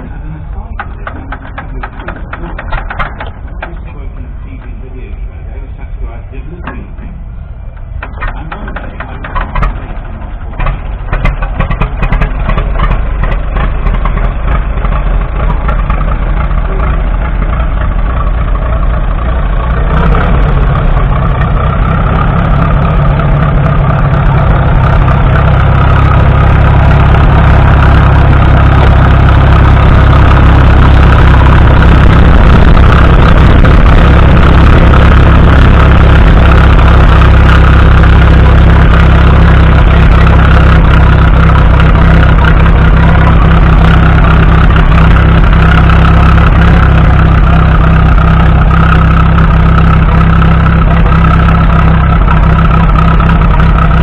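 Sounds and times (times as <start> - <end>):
tractor engine starting and idling: 0.0 - 54.0.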